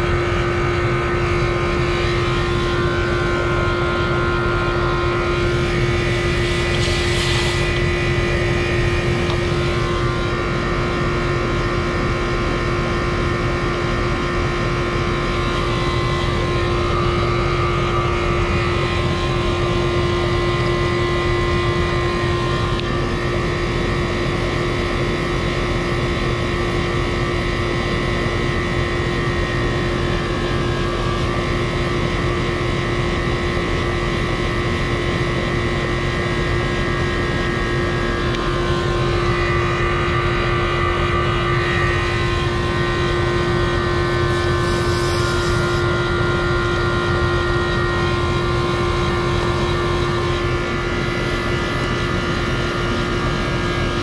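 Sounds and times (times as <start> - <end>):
air conditioner unit humming: 0.0 - 54.0
faint high whining tones: 0.2 - 11.4, 38.4 - 50.9.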